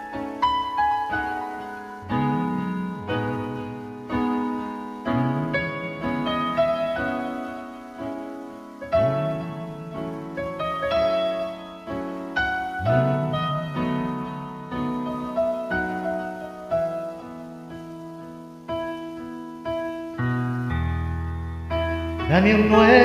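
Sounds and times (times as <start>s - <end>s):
keyboard chords: 0.0s - 23.0s
low bass line: 12.8s - 14.5s.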